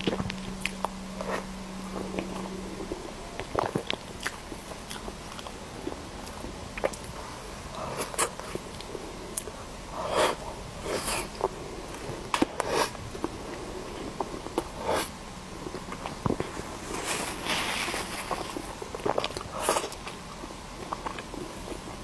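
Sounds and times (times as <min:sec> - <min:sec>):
wet smacking and chewing: 0:00.0 - 0:02.5, 0:03.3 - 0:09.6, 0:18.3 - 0:22.0.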